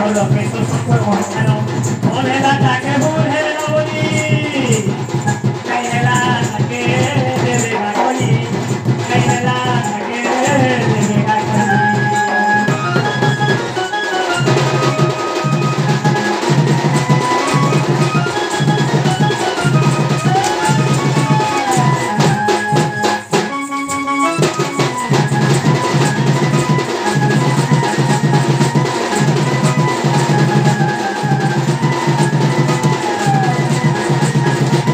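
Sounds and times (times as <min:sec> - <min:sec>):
barrel drum beating: 0:00.0 - 0:34.9
folk melody line: 0:10.0 - 0:34.9.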